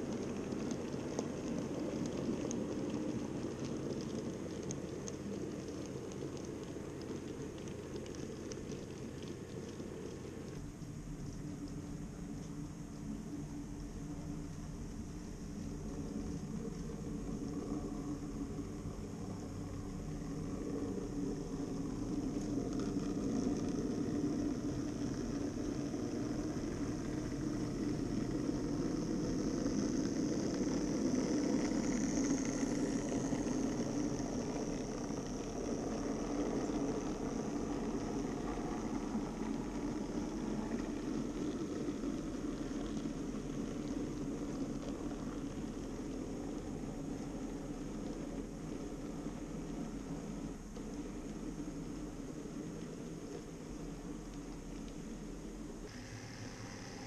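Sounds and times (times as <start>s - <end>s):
wheels rolling on rails: 0.0s - 57.0s
model train motors whirring: 55.9s - 57.0s.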